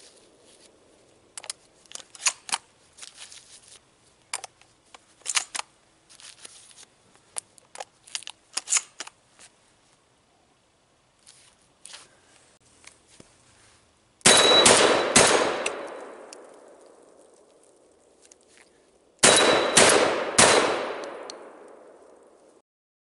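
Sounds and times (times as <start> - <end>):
shotgun shots: 14.2 - 16.4, 19.2 - 22.0
gunshot echo: 14.3 - 16.4, 19.2 - 22.2.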